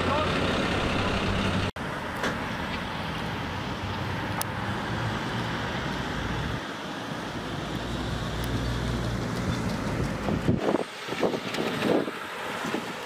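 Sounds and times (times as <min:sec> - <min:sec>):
diesel engine idling: 0:00.0 - 0:01.7
car approaching: 0:00.0 - 0:13.0
road traffic noise: 0:00.0 - 0:13.0.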